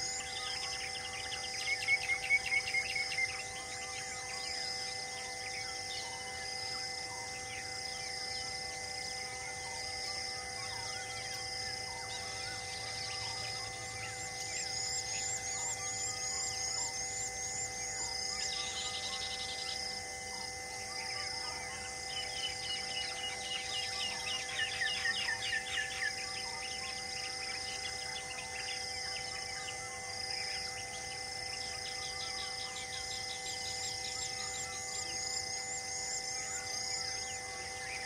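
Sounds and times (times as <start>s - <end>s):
steady droning hum: 0.0s - 38.0s
birds trilling: 10.0s - 20.0s, 21.2s - 38.0s.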